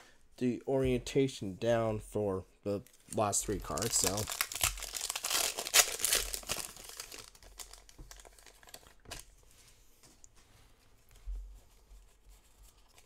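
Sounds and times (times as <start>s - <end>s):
cards and foil wrapper crinkling: 2.8s - 9.4s.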